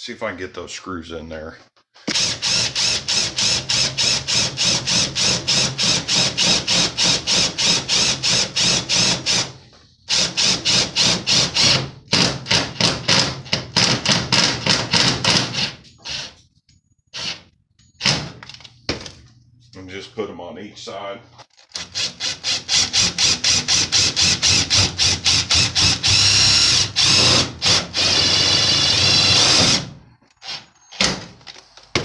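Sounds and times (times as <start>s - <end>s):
cordless drill driving screws: 2.1s - 9.5s, 21.7s - 31.0s.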